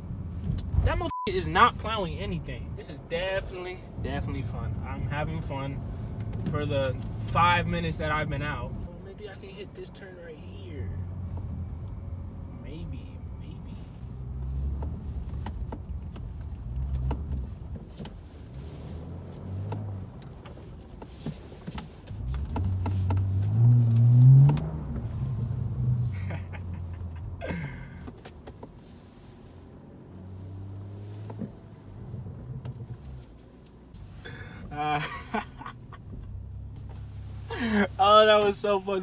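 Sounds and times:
car engine revving: 10.6s - 39.0s.

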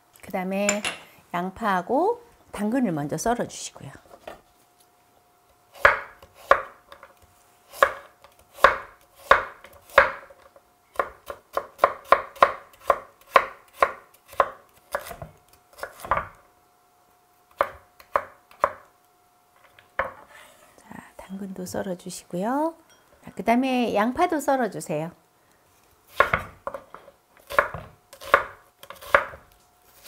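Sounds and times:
knife chopping on wooden board: 5.8s - 6.7s, 7.8s - 10.3s, 11.0s - 16.4s, 26.1s - 26.8s, 27.4s - 29.4s.

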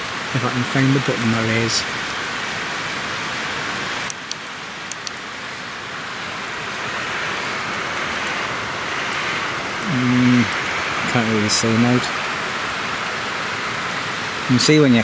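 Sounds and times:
steady rain hiss: 0.0s - 15.0s
sharp clicks: 4.1s - 5.2s.

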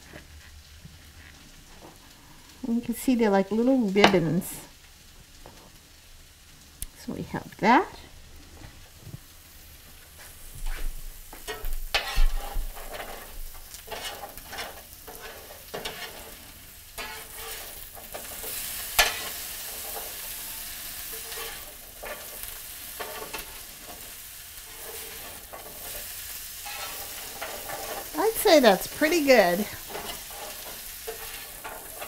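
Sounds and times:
bread frying sizzle: 0.0s - 32.0s
utensil scraping and clacking on pan: 10.2s - 32.0s.

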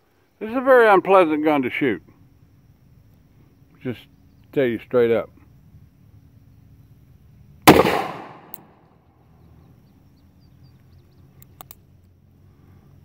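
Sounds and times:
revolver gunshot: 7.7s - 8.8s.

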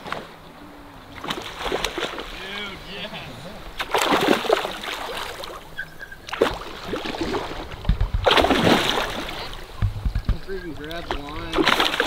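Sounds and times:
water splashing: 0.0s - 12.0s
low thumps: 6.5s - 11.8s.

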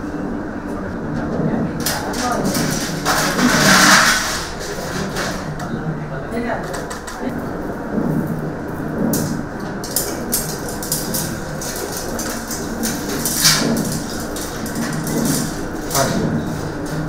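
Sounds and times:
background murmur: 0.0s - 17.0s
sharp clicks and rustles: 9.0s - 17.0s.

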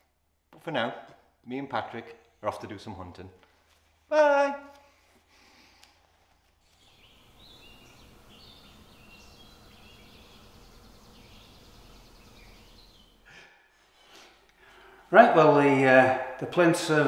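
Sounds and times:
high bird chirps: 6.7s - 13.3s.

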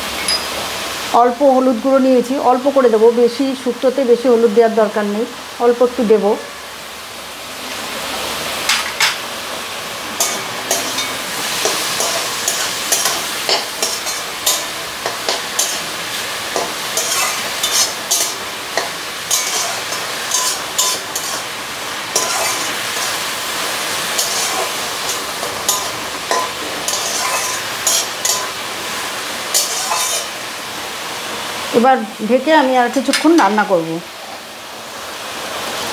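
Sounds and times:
vegetables sizzling in a pan: 0.0s - 35.9s
spatula scraping a metal pan: 10.2s - 21.5s, 22.1s - 23.3s, 24.1s - 28.6s, 29.5s - 30.4s.

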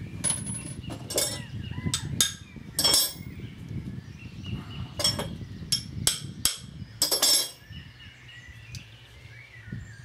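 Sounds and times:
metallic clinks and knocks: 0.2s - 1.4s, 2.2s - 3.3s, 5.0s - 7.6s.

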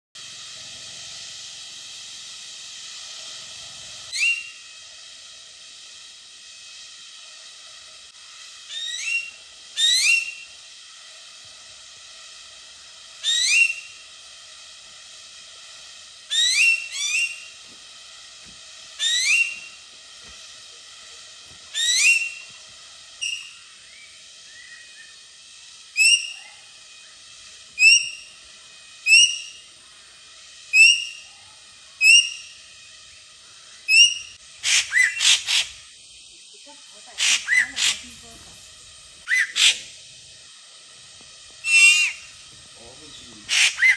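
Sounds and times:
background hiss: 0.2s - 43.9s
bird whistling calls: 4.1s - 4.7s, 8.6s - 10.5s, 13.2s - 14.0s, 16.3s - 17.6s, 19.0s - 19.8s, 21.7s - 22.6s, 23.2s - 25.3s, 25.9s - 27.2s, 27.8s - 28.4s, 29.0s - 29.7s, 30.7s - 32.6s, 33.5s - 35.8s, 37.2s - 38.3s, 39.2s - 39.9s, 41.6s - 42.4s, 43.4s - 43.9s.

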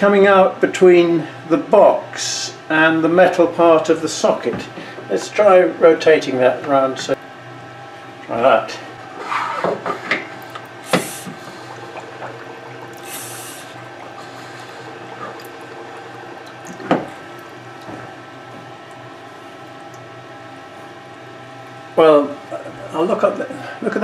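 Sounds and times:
steady hum: 0.0s - 24.0s
air bubbling through water: 10.3s - 19.9s.

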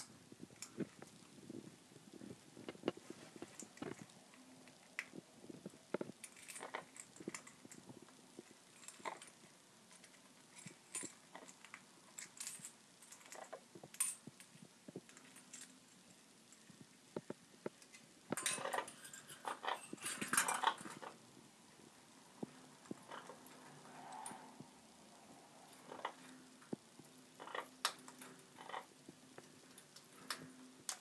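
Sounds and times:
jangling and clattering: 18.4s - 21.2s.

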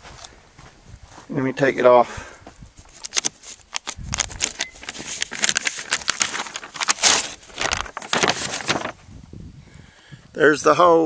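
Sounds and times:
paper rustling and crinkling: 2.8s - 9.0s.

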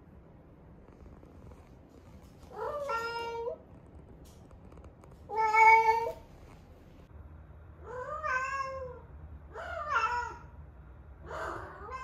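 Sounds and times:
cat yowling: 7.8s - 10.5s, 11.3s - 12.0s.

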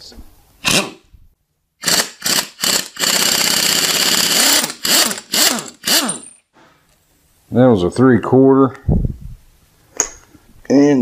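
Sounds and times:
power tool winding up and down: 1.8s - 6.4s.

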